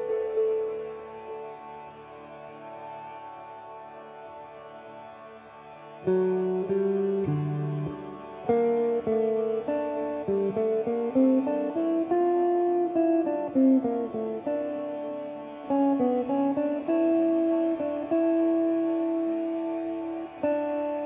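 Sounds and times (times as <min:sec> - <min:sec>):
plucked guitar melody: 0:00.0 - 0:01.5, 0:05.9 - 0:21.0.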